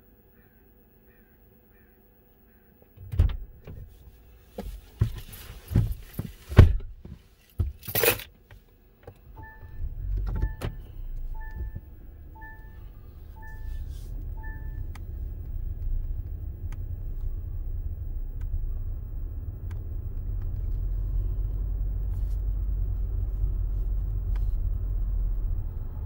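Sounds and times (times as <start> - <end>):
short rustle: 3.7 - 7.6
thumps and knocks inside car: 4.5 - 7.9
car engine starting and running: 8.9 - 26.0
dashboard warning chime beeping: 9.4 - 15.4.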